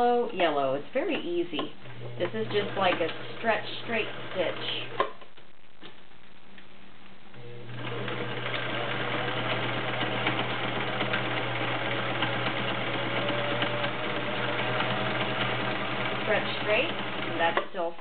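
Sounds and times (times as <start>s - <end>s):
sewing machine stitching: 2.2s - 5.0s, 7.7s - 17.9s.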